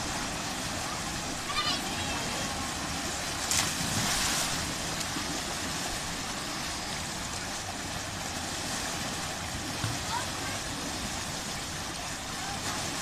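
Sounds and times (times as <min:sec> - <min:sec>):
water rushing into pool: 0:00.0 - 0:13.0
person splashing into water: 0:03.4 - 0:04.6.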